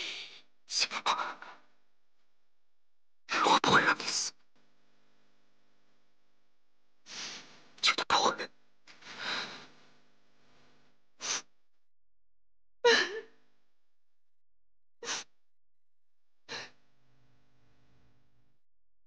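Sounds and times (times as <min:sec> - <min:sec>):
woman sobbing: 0:12.8 - 0:13.3.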